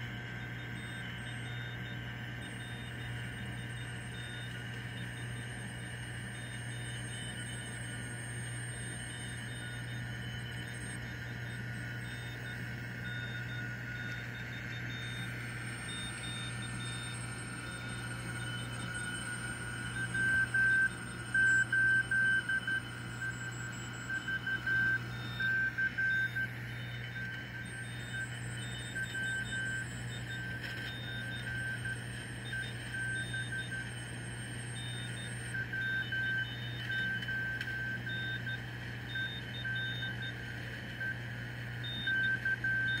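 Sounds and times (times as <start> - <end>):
morse code tone: 0.0 - 43.0.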